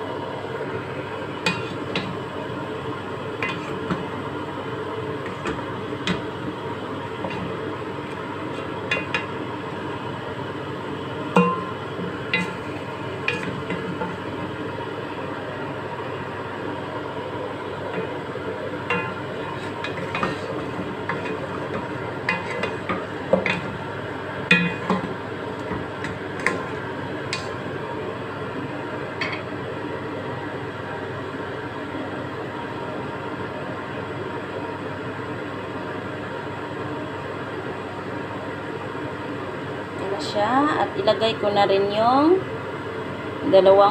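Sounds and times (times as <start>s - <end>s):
steady background noise: 0.0s - 43.9s
spatula knocking against pot: 11.4s - 12.6s, 18.9s - 20.5s, 24.5s - 26.7s.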